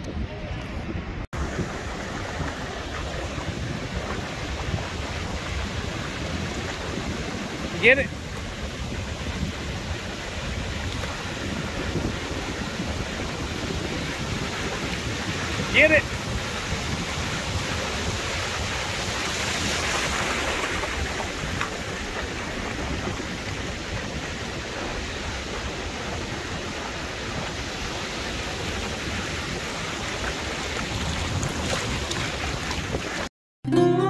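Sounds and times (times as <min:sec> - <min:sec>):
wind: 0:00.0 - 0:33.3
ocean surf: 0:00.2 - 0:34.0.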